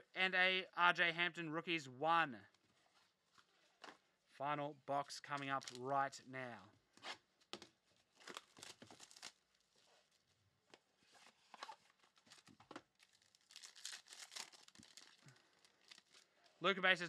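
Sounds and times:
packaging tearing and crinkling: 0:05.6 - 0:05.8, 0:08.1 - 0:09.5, 0:12.0 - 0:16.3.

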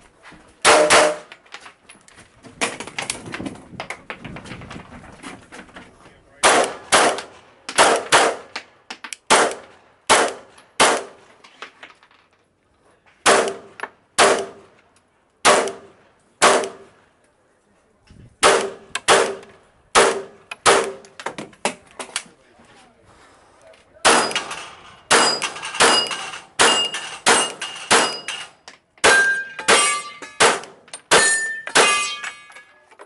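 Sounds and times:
pistol shots: 0:00.6 - 0:01.3, 0:06.4 - 0:08.6, 0:09.3 - 0:11.2, 0:13.2 - 0:14.6, 0:15.4 - 0:16.8, 0:18.4 - 0:21.1, 0:24.0 - 0:28.4, 0:29.0 - 0:32.2.

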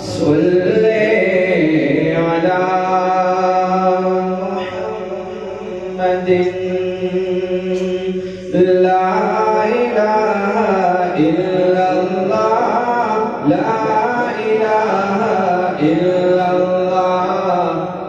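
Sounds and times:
man singing unaccompanied: 0:00.0 - 0:18.0.

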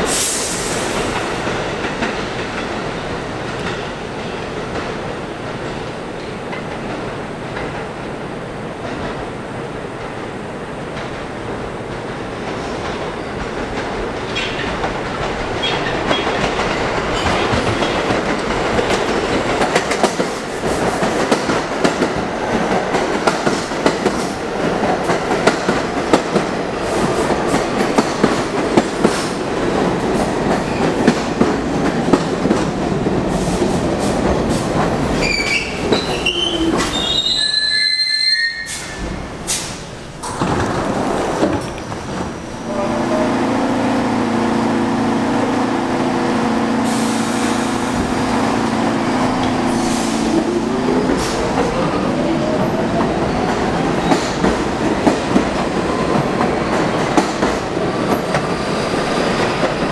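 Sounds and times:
wheel and brake squeal: 0:35.2 - 0:39.1
train rumble: 0:38.7 - 0:59.9.

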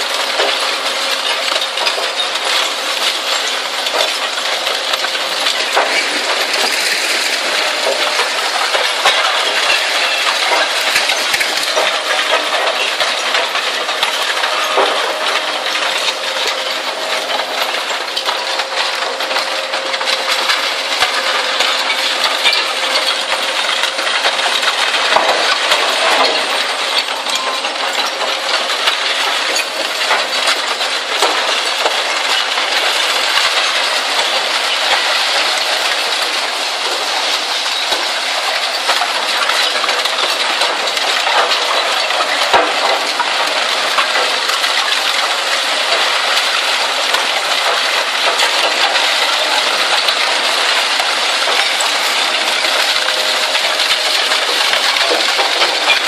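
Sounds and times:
metal pieces clattering onto pile: 0:00.0 - 0:56.0
shredder tearing scrap steel: 0:00.0 - 0:56.0.

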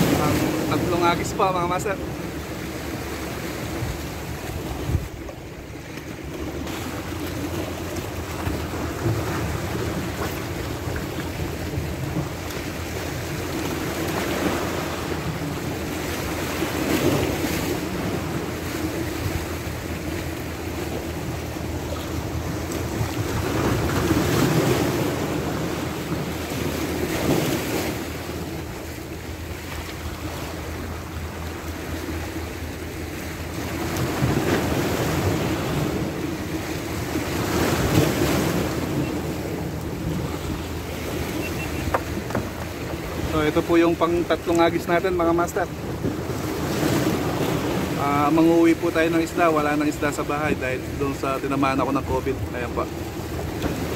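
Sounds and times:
wind rumble on microphone: 0:00.0 - 0:32.8
waves breaking on rocks: 0:00.0 - 0:53.9.

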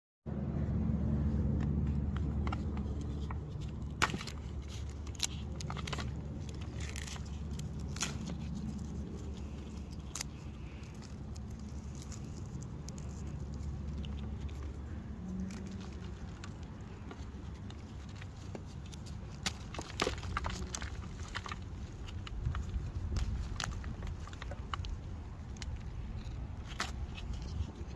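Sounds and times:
low rumble: 0:00.3 - 0:19.0
clay and chalk crackling and snapping: 0:01.3 - 0:27.9.

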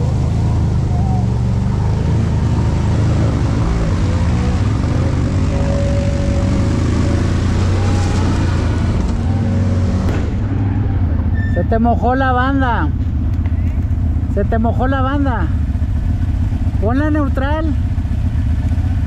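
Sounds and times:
vehicle riding through shallow water: 0:00.0 - 0:10.0
quad engine running at low speed: 0:00.0 - 0:19.0.

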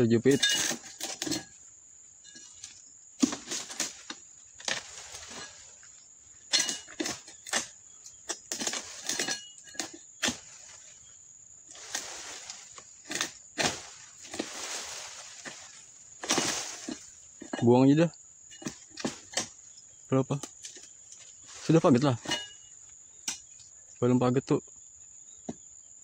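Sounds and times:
high insect buzz: 0:00.0 - 0:26.0
chisel chopping palm fronds: 0:00.3 - 0:01.5, 0:03.2 - 0:05.7, 0:06.5 - 0:10.9, 0:11.7 - 0:17.6, 0:18.5 - 0:19.6.

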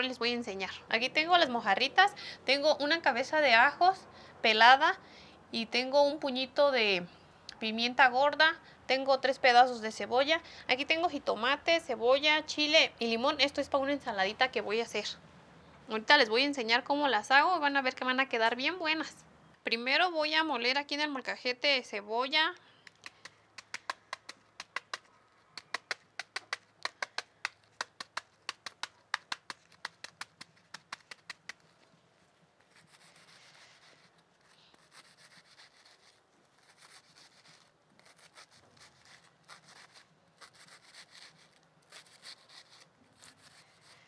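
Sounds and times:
knife slicing onion: 0:32.7 - 0:44.0.

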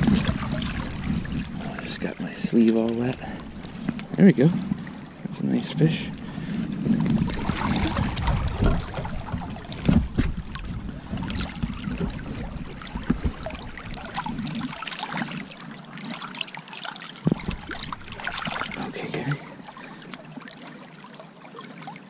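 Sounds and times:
low rumble: 0:00.0 - 0:14.6
stream running: 0:00.0 - 0:22.0
water splashing: 0:00.0 - 0:22.0.

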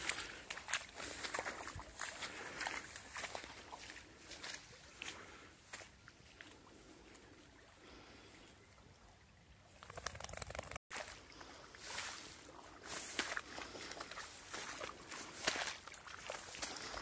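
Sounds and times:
footsteps swishing through wet grass: 0:00.0 - 0:07.7, 0:10.9 - 0:17.0.

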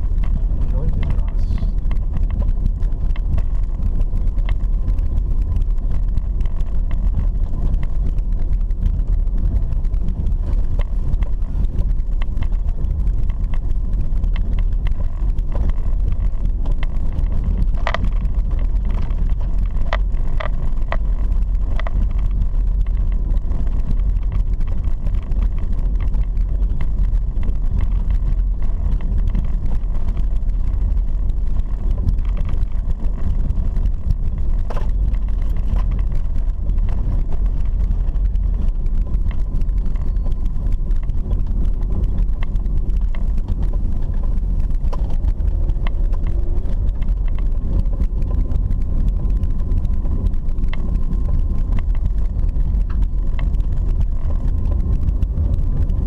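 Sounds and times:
car rumbling on dirt road: 0:00.0 - 0:56.0.

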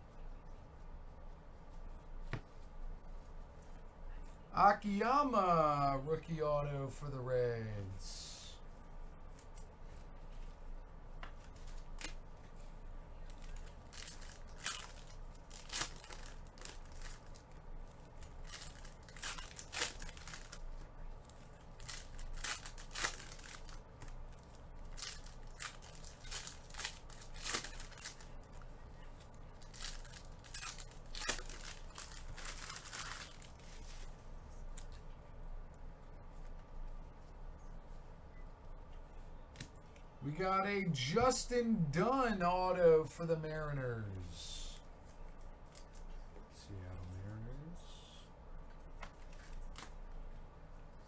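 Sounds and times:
foil wrappers crinkling: 0:13.2 - 0:35.0
trading cards flipping: 0:21.3 - 0:34.1.

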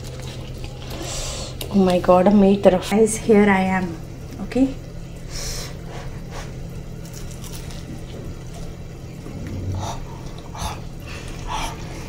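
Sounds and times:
steady low hum: 0:00.0 - 0:12.0
crunching bites of food: 0:07.0 - 0:10.5.

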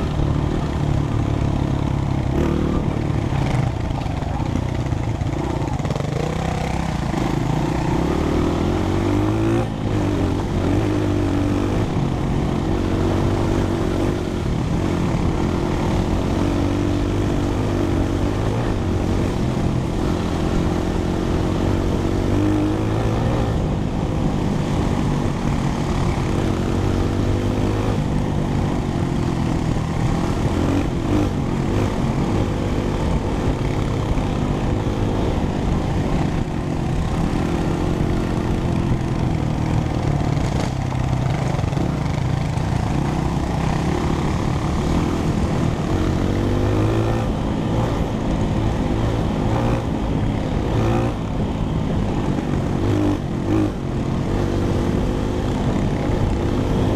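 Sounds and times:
dirt bike engine revving: 0:02.3 - 0:03.6, 0:05.3 - 0:23.6.

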